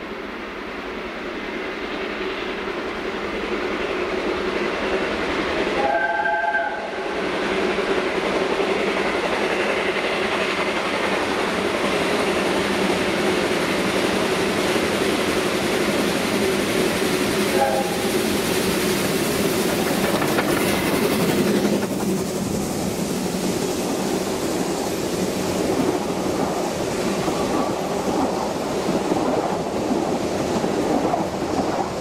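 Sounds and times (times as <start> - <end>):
steam locomotive running: 0.0 - 32.0
steam whistle blast: 5.8 - 7.0, 17.5 - 18.1.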